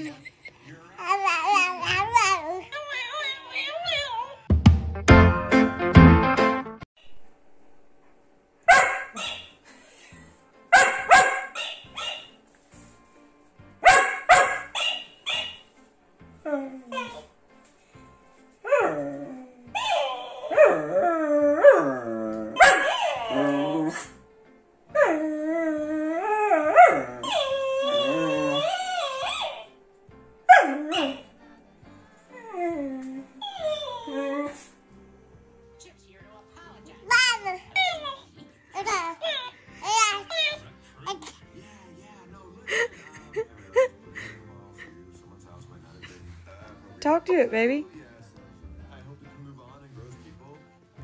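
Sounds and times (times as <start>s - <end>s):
dog barking: 8.7s - 9.6s, 10.7s - 12.4s, 13.8s - 15.6s, 22.6s - 24.0s
dog howling: 18.6s - 24.1s, 25.0s - 29.7s, 30.5s - 31.3s, 32.3s - 34.7s.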